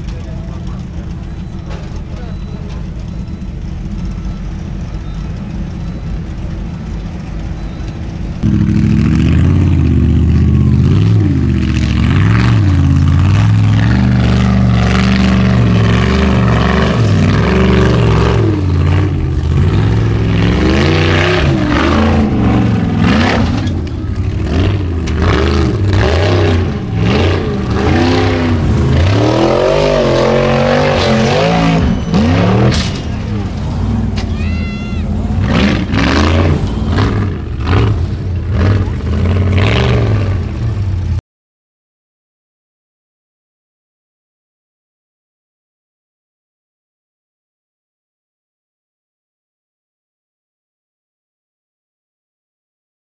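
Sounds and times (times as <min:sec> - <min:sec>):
buggy engine idling and revving: 0:00.0 - 0:41.2.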